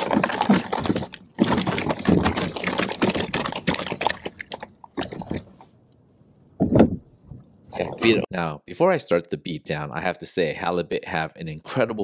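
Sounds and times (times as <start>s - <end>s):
fish clicks scrapes and slaps: 0.0s - 5.7s.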